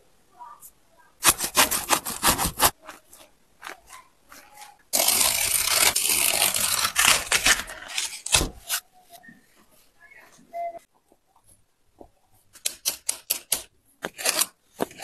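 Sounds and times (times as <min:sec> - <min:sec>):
glued layer tearing: 0:01.2 - 0:02.8, 0:05.0 - 0:08.8.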